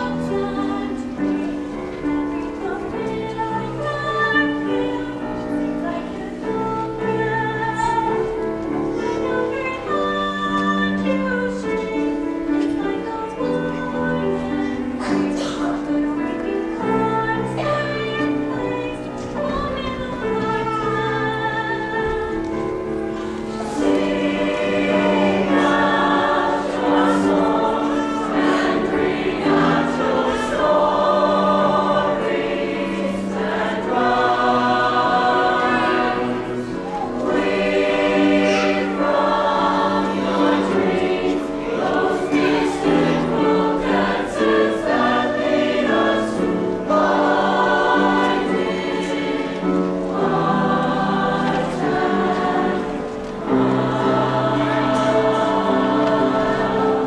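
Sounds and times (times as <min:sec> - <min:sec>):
mixed choir singing: 0:00.0 - 0:57.0
piano accompaniment: 0:00.0 - 0:57.0.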